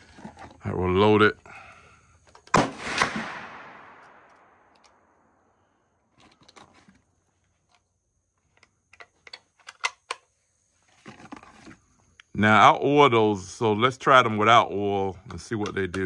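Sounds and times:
gunshot with echo: 0:02.5 - 0:04.3
shotgun shells clicking: 0:08.5 - 0:10.3.

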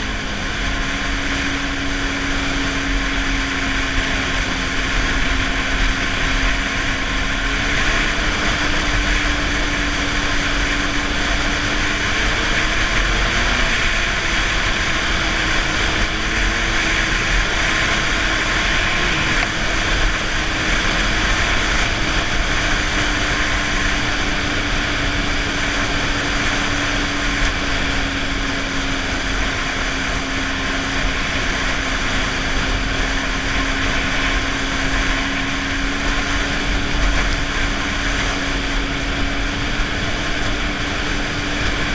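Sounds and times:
snowmobile engine running: 0:00.0 - 0:41.9
track noise: 0:00.0 - 0:41.9
wind: 0:00.0 - 0:41.9.

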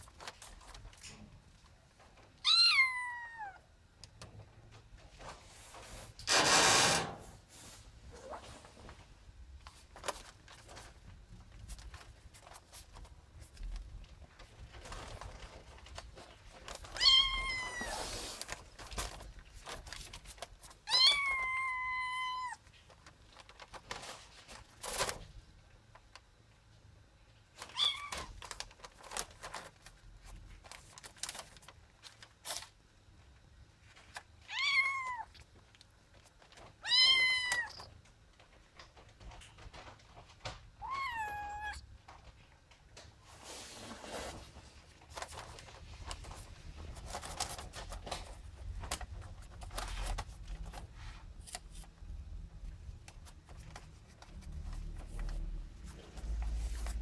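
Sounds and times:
kitten meowing: 0:02.4 - 0:03.6, 0:17.0 - 0:18.0, 0:20.9 - 0:22.6, 0:34.5 - 0:35.3, 0:36.8 - 0:37.9, 0:40.8 - 0:41.8.

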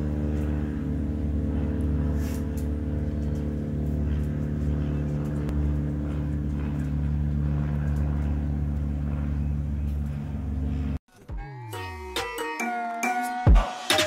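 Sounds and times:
aircraft engine drone: 0:00.0 - 0:11.0
music: 0:11.1 - 0:14.0.

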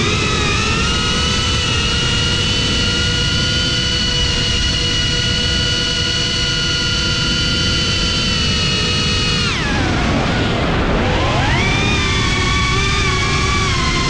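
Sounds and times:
drone motors whining: 0:00.0 - 0:14.0
low wind rumble: 0:09.4 - 0:14.0.

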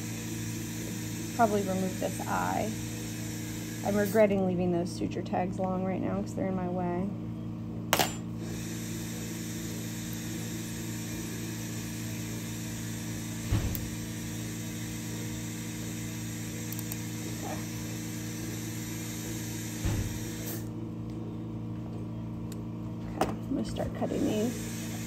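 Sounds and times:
steady mechanical hum: 0:00.0 - 0:25.0.

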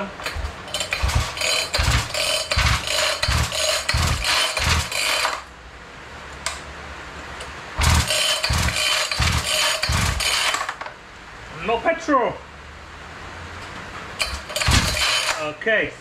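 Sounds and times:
starter rope pulls: 0:00.0 - 0:05.5, 0:07.8 - 0:10.9, 0:14.2 - 0:15.5.

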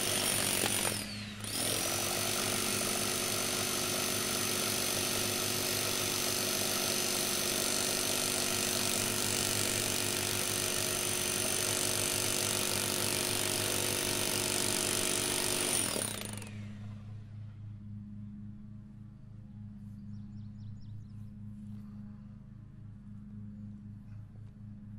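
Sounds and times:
rotary hammer pounding: 0:00.0 - 0:16.6
motor winding down: 0:00.0 - 0:17.0.

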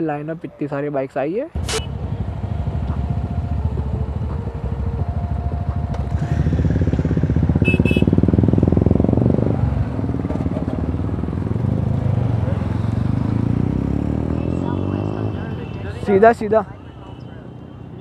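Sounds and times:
short double beep: 0:01.6 - 0:01.9
motorcycle engine idling: 0:01.6 - 0:15.8.

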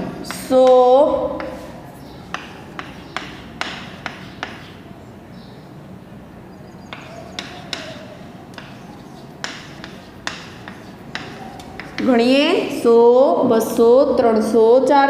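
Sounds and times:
chalk tapping on blackboard: 0:00.2 - 0:04.8, 0:06.9 - 0:12.4.

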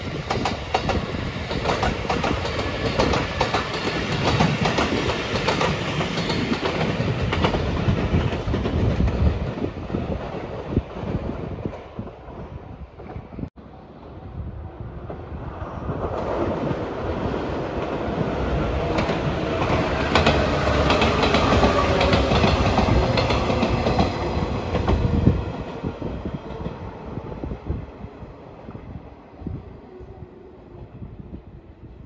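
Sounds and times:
train rumble: 0:00.0 - 0:32.0
train wheels clacking over rail joints: 0:18.8 - 0:25.1.

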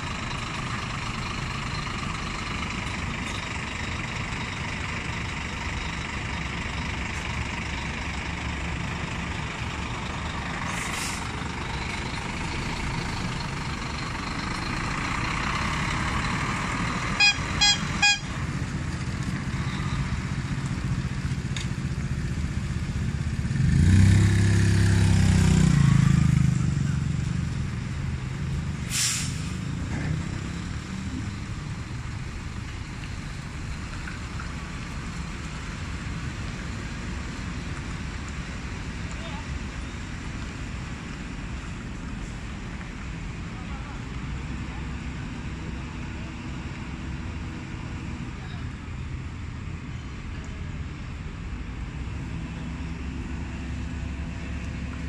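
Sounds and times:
diesel truck engine: 0:00.0 - 0:55.0
air brake hisses: 0:10.7 - 0:11.4, 0:28.8 - 0:29.6
truck horn toots: 0:17.2 - 0:18.4.

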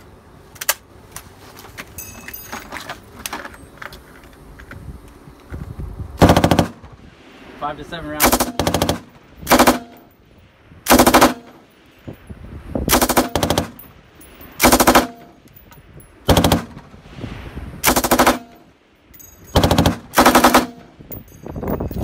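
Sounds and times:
machine gun firing short bursts: 0:06.2 - 0:06.8, 0:08.2 - 0:10.0, 0:10.9 - 0:11.5, 0:14.6 - 0:15.2, 0:16.3 - 0:16.8, 0:17.9 - 0:18.5, 0:19.6 - 0:20.8.

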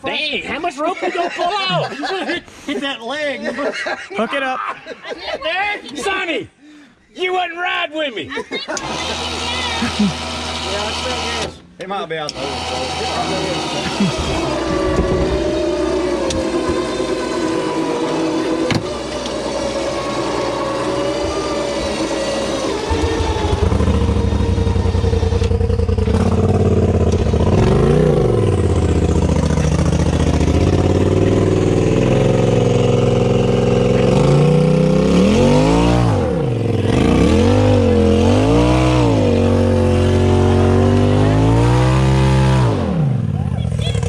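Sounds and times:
vehicle engine revving: 0:08.8 - 0:11.6, 0:12.2 - 0:44.0.

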